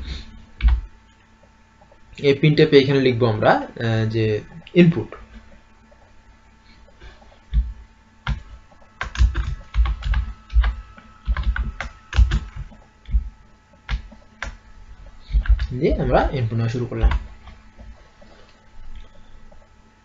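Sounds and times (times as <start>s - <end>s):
typing on computer keyboard: 9.0s - 13.2s, 15.3s - 15.8s.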